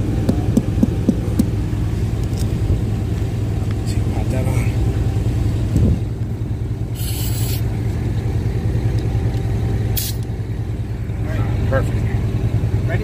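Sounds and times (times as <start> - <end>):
air compressor humming: 0.0 - 13.0
air hissing from hose chuck: 7.0 - 7.7, 10.0 - 10.3.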